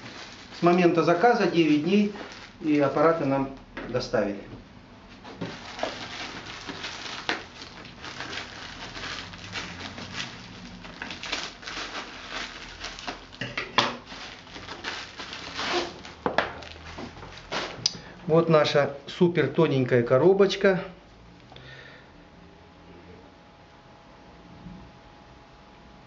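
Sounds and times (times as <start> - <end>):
packaging rustling and crinkling: 0.0 - 4.0, 5.1 - 17.9.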